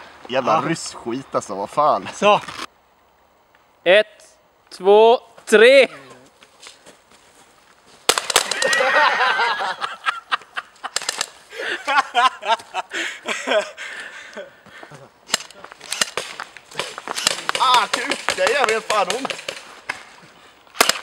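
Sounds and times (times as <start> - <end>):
airsoft pistol shots: 8.1 - 8.6, 15.3 - 19.6, 20.8 - 21.0.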